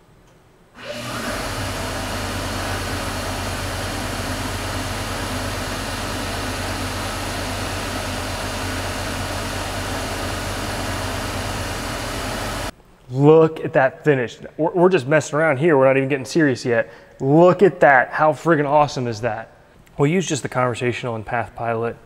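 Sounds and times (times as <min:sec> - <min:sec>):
lathe cutting steel: 0:00.8 - 0:12.7
lathe spindle running: 0:00.8 - 0:12.7.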